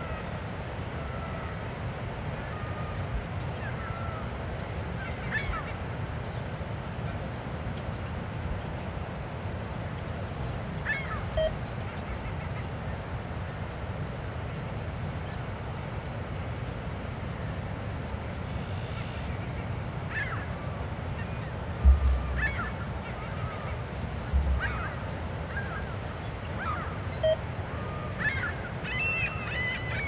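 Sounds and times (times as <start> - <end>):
short arched bird calls: 20.2 - 30.0
steady low rumble: 20.8 - 26.6.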